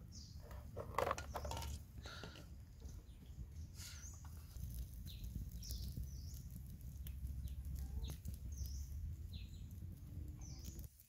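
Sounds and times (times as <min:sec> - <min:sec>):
twig fire crackling: 0:00.0 - 0:11.0
water boiling: 0:02.7 - 0:11.0
low rumble: 0:04.6 - 0:10.8
bird chirps: 0:05.0 - 0:09.8.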